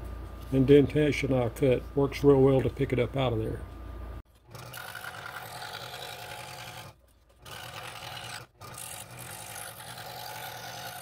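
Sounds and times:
scroll saw cutting wood: 0:04.4 - 0:11.0.

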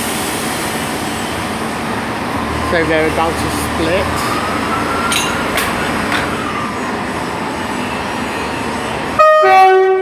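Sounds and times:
diesel trains idling: 0:00.0 - 0:09.4
two-tone train horn: 0:09.2 - 0:10.0.

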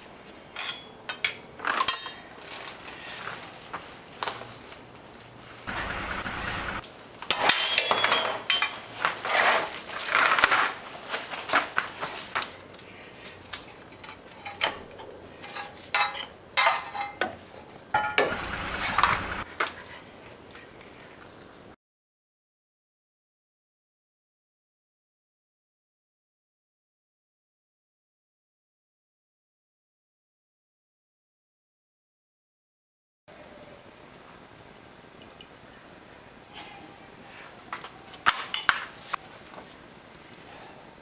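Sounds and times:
metallic clinks and knocks: 0:00.5 - 0:02.7, 0:07.3 - 0:09.1, 0:33.9 - 0:35.6, 0:38.2 - 0:38.9
metal scraping: 0:18.0 - 0:19.5.

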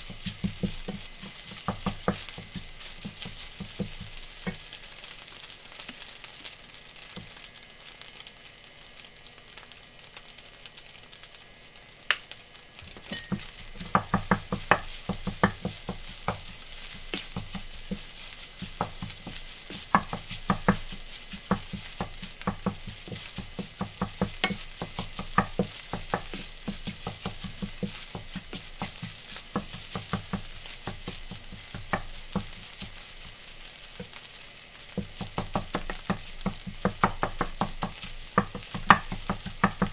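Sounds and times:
spatula scraping and knocking pan: 0:00.0 - 0:04.8, 0:12.9 - 0:39.9
rice sizzling in frying pan: 0:00.0 - 0:39.9.

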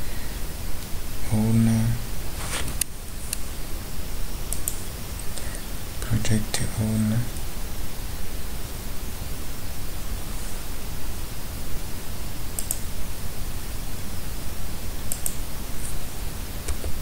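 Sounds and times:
microphone hiss: 0:00.0 - 0:17.0
computer mouse clicks: 0:04.5 - 0:04.8, 0:12.6 - 0:12.9, 0:15.1 - 0:15.4.

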